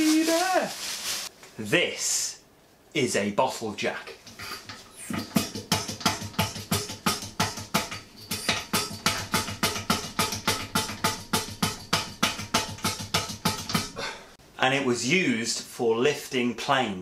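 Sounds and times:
music with percussive beat: 0:05.0 - 0:14.0.

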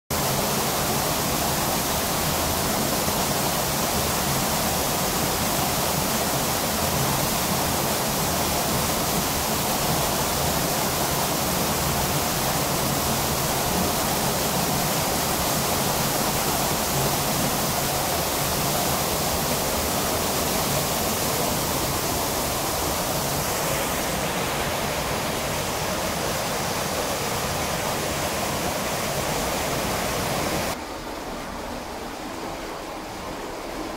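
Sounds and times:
waterfall pouring into a pool: 0:00.1 - 0:30.8.

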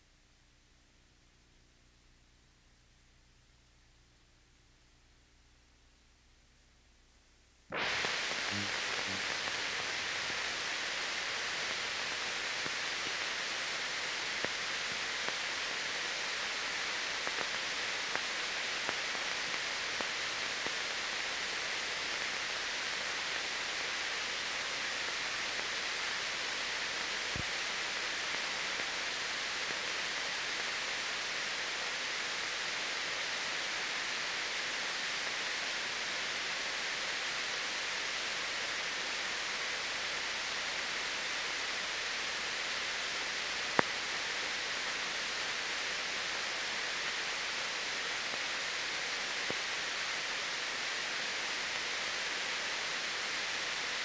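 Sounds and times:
film soundtrack hiss: 0:00.0 - 0:54.0.

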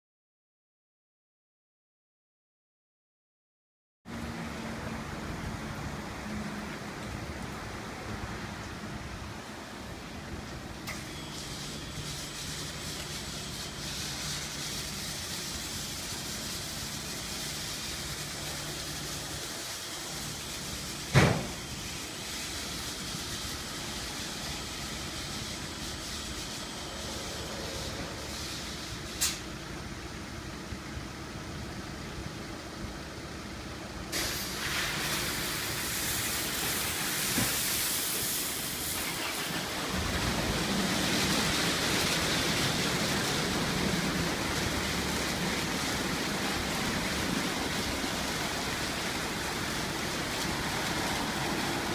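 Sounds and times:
car wash motor hum: 0:04.1 - 0:51.9
water spray hiss: 0:10.9 - 0:29.7, 0:34.1 - 0:51.9
sharp knock: 0:21.1 - 0:21.6
spinning wash brushes: 0:39.0 - 0:51.9.

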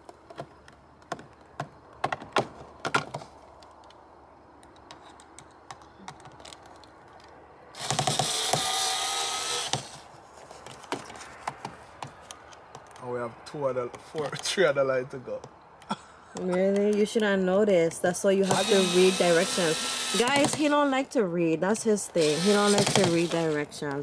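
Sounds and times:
cordless drill whining: 0:07.8 - 0:10.0, 0:18.4 - 0:20.9, 0:22.1 - 0:23.6.

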